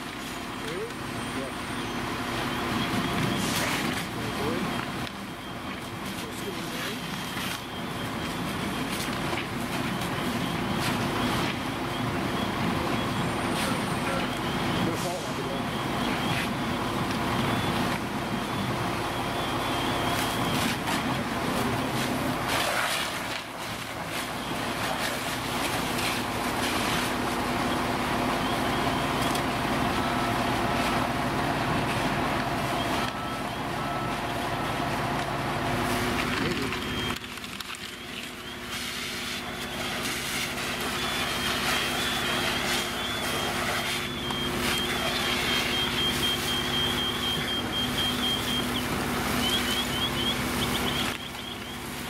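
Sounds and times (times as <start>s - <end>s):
fire engine diesel running: 0.0s - 52.0s
high electronic beeping: 0.4s - 22.5s, 32.6s - 52.0s.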